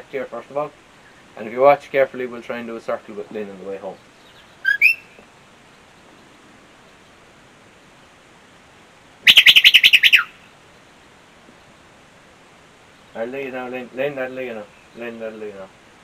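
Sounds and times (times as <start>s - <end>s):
warbling whistle trill: 4.6s - 5.1s, 9.2s - 10.4s.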